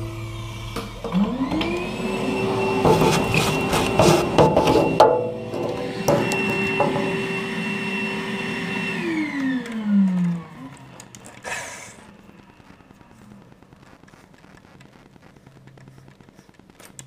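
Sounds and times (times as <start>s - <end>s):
vacuum cleaner motor: 0.0s - 13.2s
knock: 3.9s - 7.3s.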